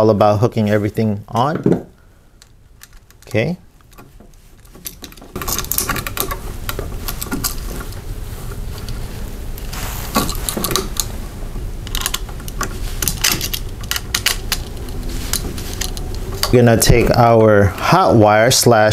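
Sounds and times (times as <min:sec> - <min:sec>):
low background noise: 0:00.0 - 0:18.9
copper wires rattling: 0:02.4 - 0:17.4.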